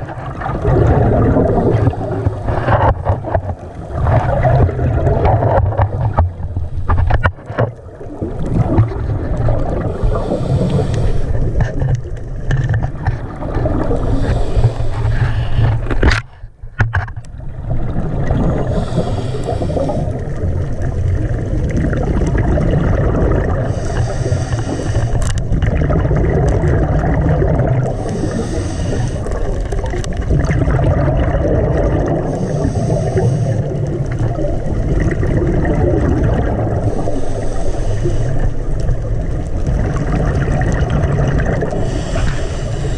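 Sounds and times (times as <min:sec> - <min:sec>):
underwater water rumble: 0:00.0 - 0:42.9
hissing swells: 0:09.6 - 0:11.5, 0:18.4 - 0:20.2, 0:27.8 - 0:29.7.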